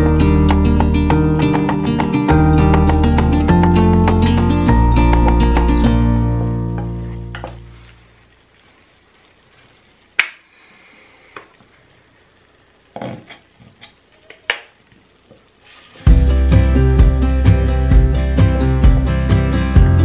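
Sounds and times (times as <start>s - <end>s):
guitar music: 0.0s - 8.0s, 16.0s - 20.0s.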